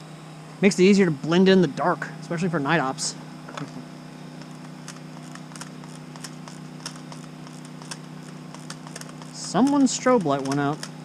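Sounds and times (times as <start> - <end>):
generators humming: 0.0 - 11.0
faint clicks and rustles: 4.4 - 9.8.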